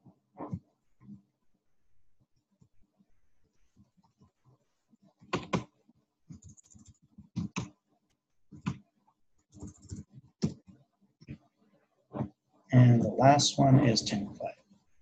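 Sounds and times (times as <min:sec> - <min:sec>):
computer keyboard typing: 0:05.2 - 0:05.7, 0:06.3 - 0:07.8, 0:08.5 - 0:08.8, 0:09.5 - 0:10.7.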